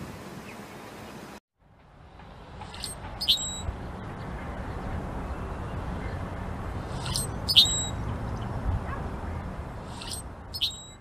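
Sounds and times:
blackbird creaky song: 2.6 - 3.8, 6.8 - 8.6, 9.8 - 11.0.

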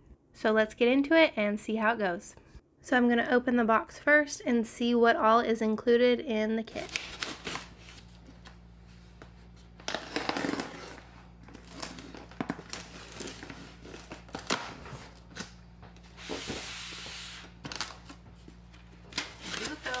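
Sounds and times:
packing tape tearing: 6.7 - 8.1, 9.8 - 15.6, 16.2 - 18.2, 19.0 - 20.0.

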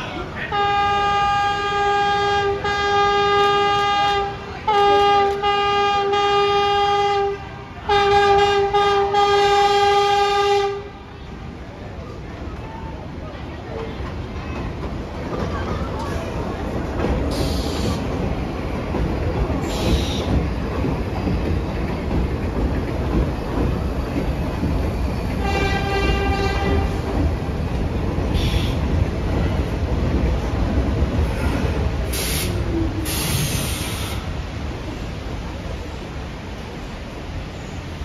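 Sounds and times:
subway train rumbling on rails: 0.0 - 38.0
train horn blast: 0.5 - 11.1, 25.4 - 27.1
bursts of hiss: 32.0 - 34.4.

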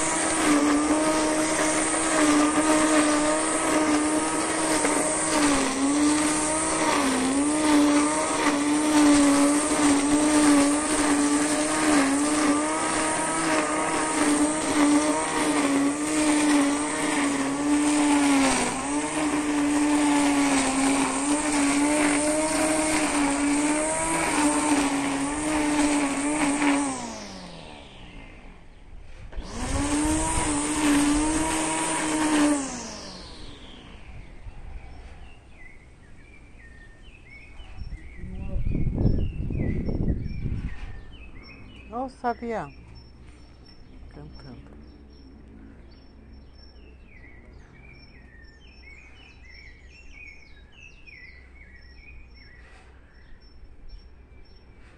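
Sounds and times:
electric string trimmer whine: 0.0 - 54.9.

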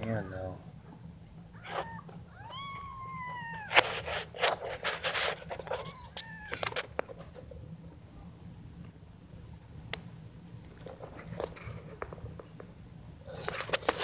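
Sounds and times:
kitten mewing: 1.5 - 7.0.

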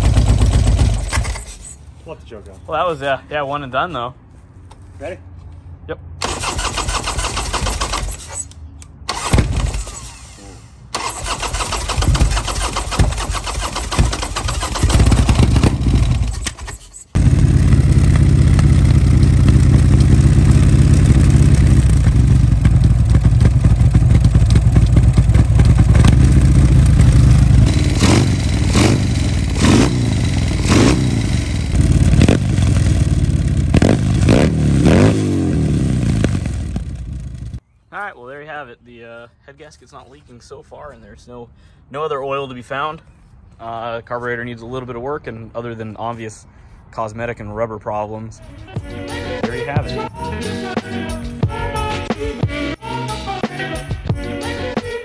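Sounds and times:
motorcycle engine starting and revving: 0.0 - 1.8, 6.2 - 37.6.

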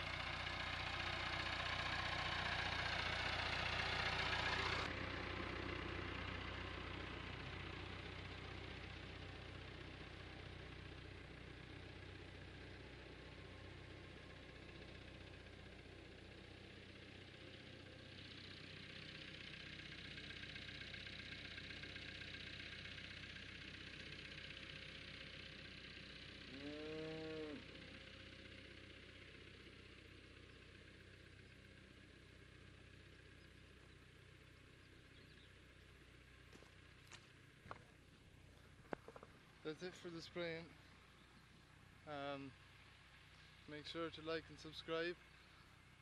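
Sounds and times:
tractor diesel engine running: 0.0 - 46.0
cow mooing: 26.5 - 27.8.

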